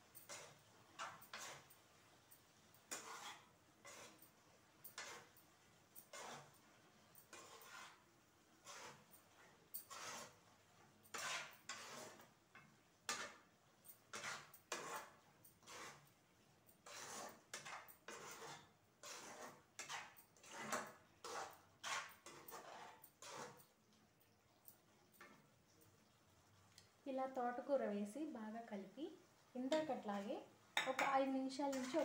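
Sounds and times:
spatula scraping a metal pan: 0.0 - 1.8, 2.8 - 23.8, 25.2 - 25.5, 30.8 - 32.0.

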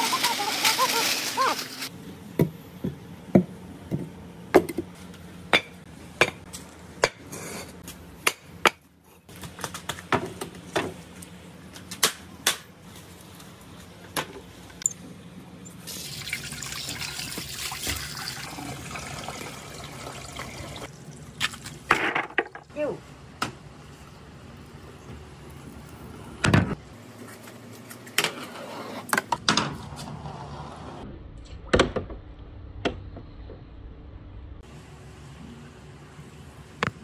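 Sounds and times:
water pouring and splashing: 15.8 - 21.9.

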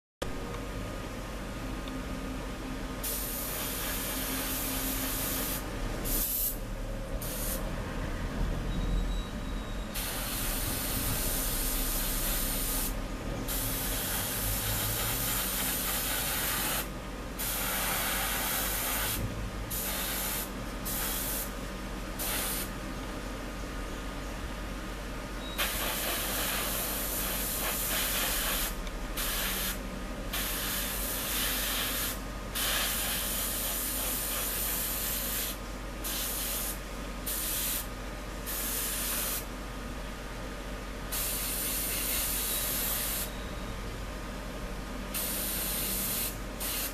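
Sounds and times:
airbrush spraying hiss: 3.0 - 6.6, 7.2 - 7.6, 9.9 - 21.5, 22.2 - 22.7, 25.6 - 39.5, 41.1 - 43.3, 45.1 - 46.9.

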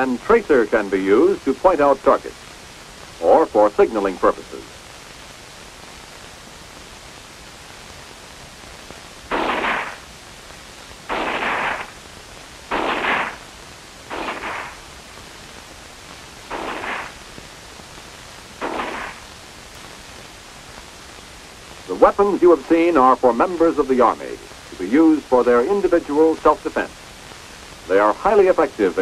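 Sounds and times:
film soundtrack hiss: 0.0 - 29.0
automatic gunfire bursts: 9.3 - 10.0, 11.1 - 11.9, 12.7 - 13.4, 14.1 - 14.8, 16.5 - 17.2, 18.6 - 19.2.

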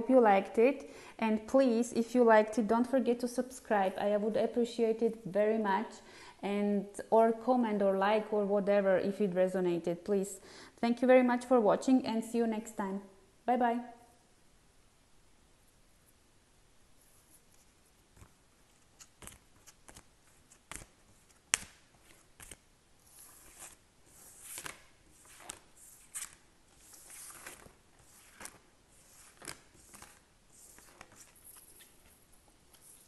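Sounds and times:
cards sliding swishes: 17.2 - 33.0.

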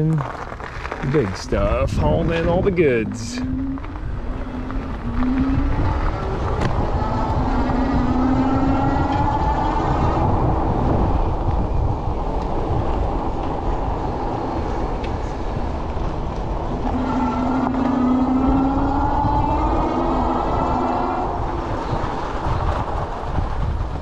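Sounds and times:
rolling noise: 0.0 - 24.0
wind: 0.0 - 24.0
electric motor whine: 3.4 - 11.9, 16.8 - 21.9.

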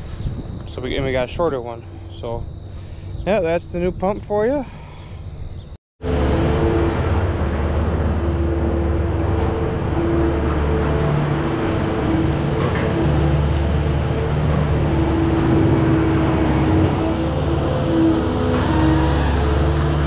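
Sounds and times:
steady whine: 0.0 - 19.7
loader engine running: 6.0 - 20.0.

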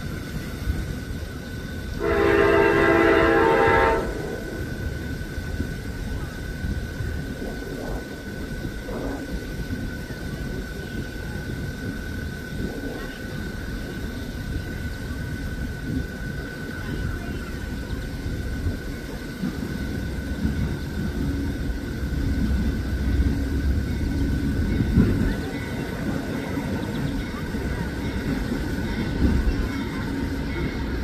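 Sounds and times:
low steady rumble: 0.0 - 31.0
locomotive air horn blast: 2.0 - 4.5.

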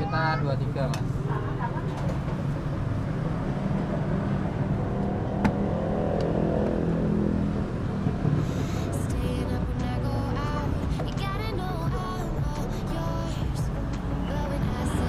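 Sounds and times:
street traffic rumble: 0.0 - 15.0
vehicle engine passing: 1.0 - 9.1.

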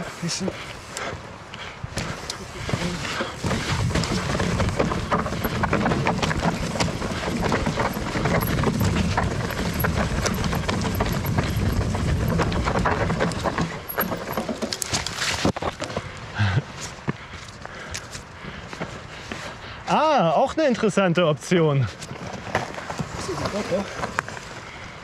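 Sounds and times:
bike rattling over rocks: 2.0 - 16.0.

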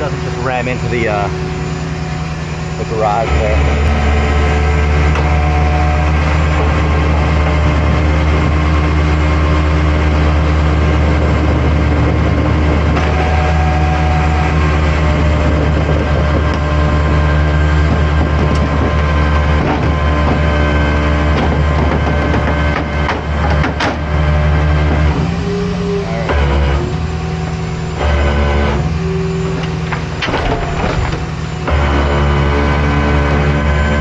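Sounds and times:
truck engine droning: 0.0 - 34.0.

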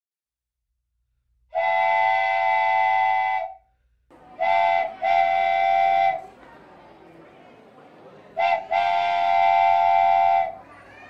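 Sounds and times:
train horn blasts: 1.6 - 3.6, 4.2 - 6.2, 8.4 - 10.6
faint background noise: 4.1 - 11.0.

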